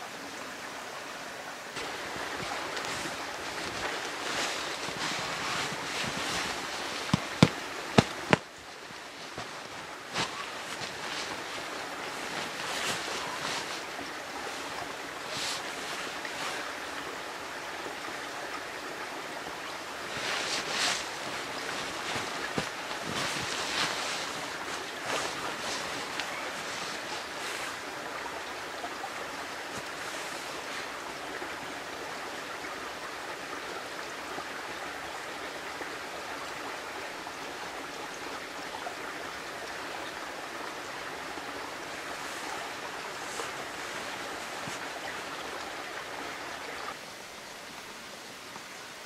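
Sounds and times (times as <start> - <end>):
faint rustles: 1.8 - 16.8, 19.8 - 27.9, 41.8 - 47.0
rushing background noise: 1.8 - 16.8, 19.5 - 28.2.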